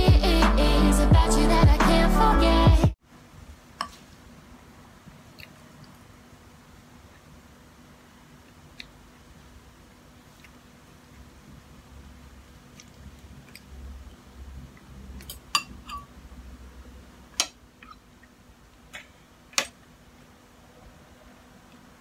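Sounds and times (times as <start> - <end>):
person chewing noodles: 5.3 - 6.0, 8.5 - 9.0, 10.2 - 11.5, 12.5 - 15.4
utensils clinking on ceramic: 15.2 - 16.1.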